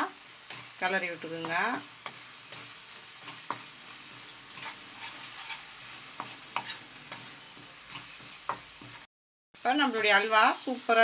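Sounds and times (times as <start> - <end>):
ghee sizzling: 0.0 - 9.1
spatula scraping and tapping pan: 0.3 - 9.1.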